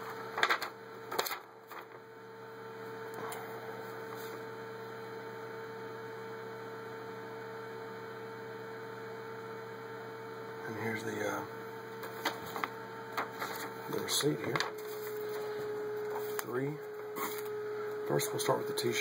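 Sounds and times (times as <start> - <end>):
paper rustling: 0.0 - 2.0, 12.0 - 16.5, 17.2 - 17.5
electrical hum: 0.0 - 19.0.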